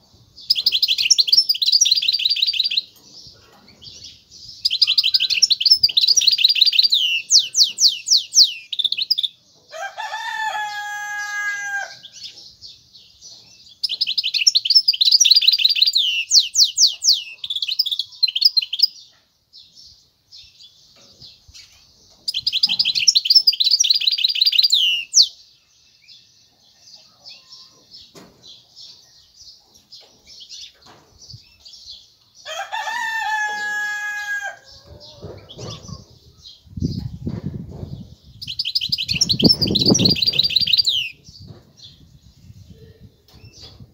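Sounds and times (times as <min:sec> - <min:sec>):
rooster crowing: 0:09.7 - 0:12.1, 0:32.5 - 0:35.5
finch trilling song: 0:38.4 - 0:41.5.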